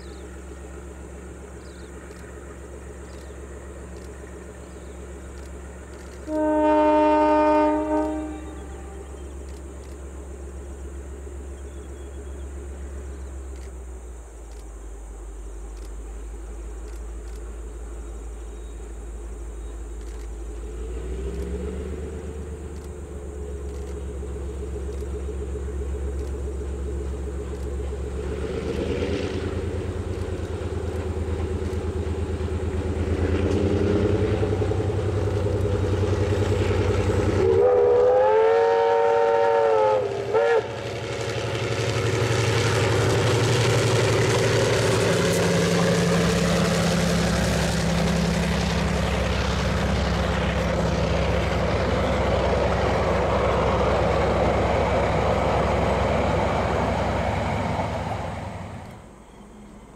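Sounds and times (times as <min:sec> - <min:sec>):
locomotive engine: 0:00.0 - 0:59.9
train wheel and rail noise: 0:00.0 - 0:59.9
train horn: 0:06.2 - 0:09.3, 0:36.6 - 0:41.2.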